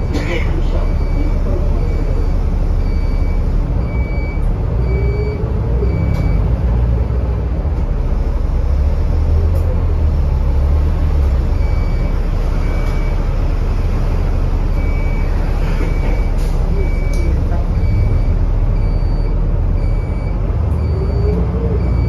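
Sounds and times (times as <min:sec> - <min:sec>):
bus engine and road rumble: 0:00.0 - 0:22.0.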